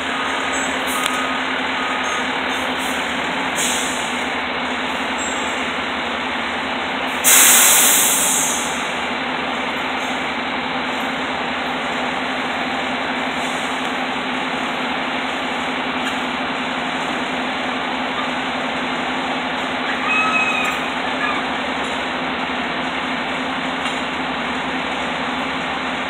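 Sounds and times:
diesel engine idling: 0.0s - 26.0s
air hissing: 2.8s - 4.3s, 7.2s - 9.0s.

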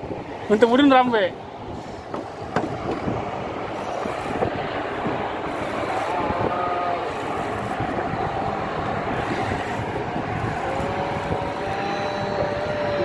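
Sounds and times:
boat engine rumbling: 0.0s - 13.0s.

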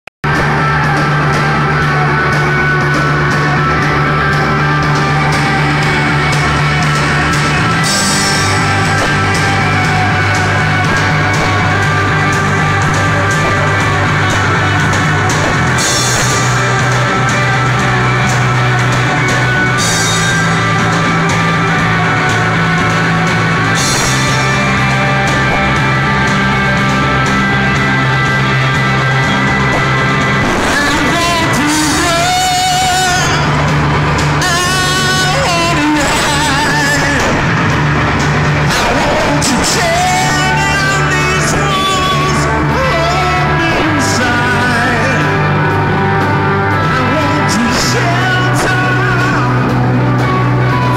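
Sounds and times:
live rock band playing: 0.2s - 50.9s
cymbal crash: 5.4s - 31.2s.

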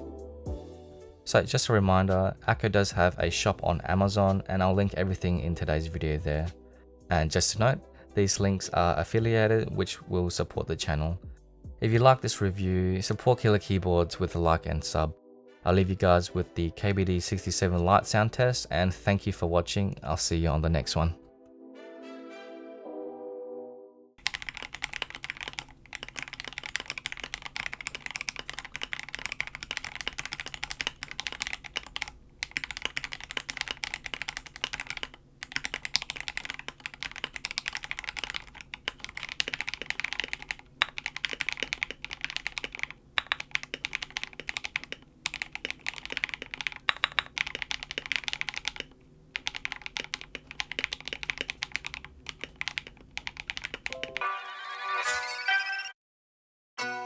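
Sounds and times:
mechanical keyboard typing: 24.2s - 54.2s.

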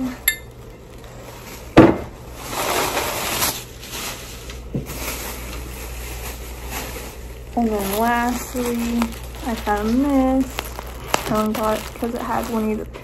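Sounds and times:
rustling: 0.4s - 13.0s.

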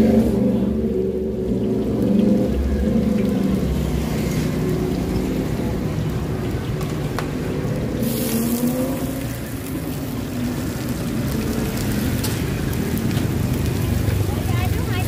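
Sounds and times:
batter sizzling in hot pan: 7.6s - 15.0s.

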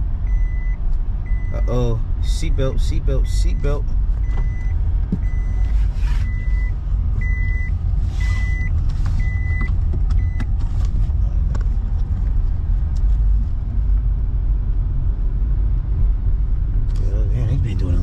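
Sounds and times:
car cabin low rumble: 0.0s - 18.0s
seatbelt reminder chime beeping: 3.4s - 10.5s.

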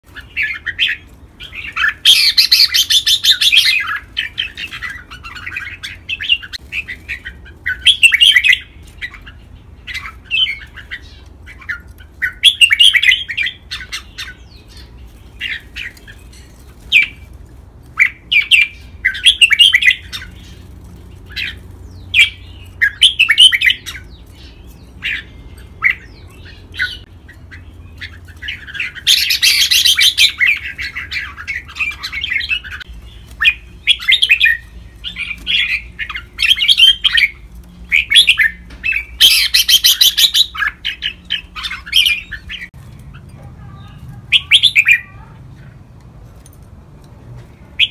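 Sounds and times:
bulbul song: 0.0s - 17.3s, 18.0s - 20.6s, 21.3s - 45.7s.

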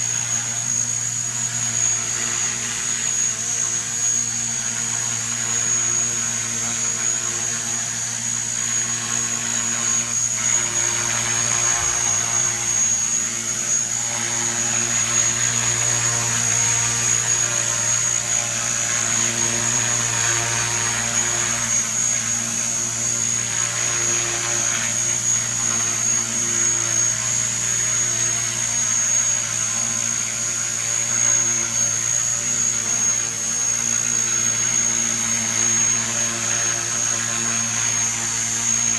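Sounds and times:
high-pitched whine: 0.0s - 38.9s
low rotor hum: 6.8s - 31.4s.

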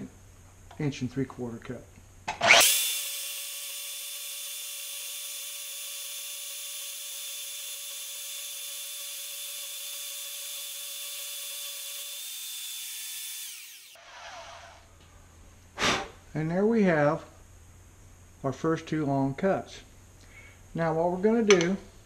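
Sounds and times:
band saw cutting steel: 2.3s - 14.8s.

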